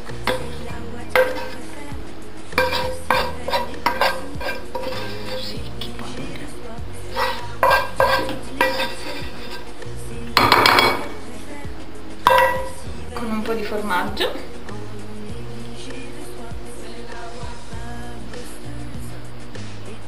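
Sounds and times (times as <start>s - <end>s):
wooden spatula knocking frying pan: 0.3s - 0.6s, 1.2s - 1.7s, 2.6s - 5.6s, 7.2s - 9.6s, 10.4s - 11.2s, 12.3s - 12.9s.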